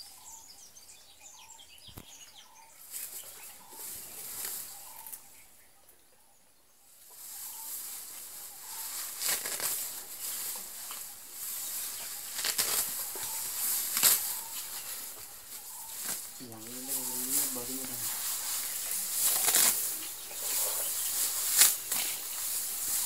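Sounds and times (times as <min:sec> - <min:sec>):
elephant ripping grass: 0:07.5 - 0:23.0.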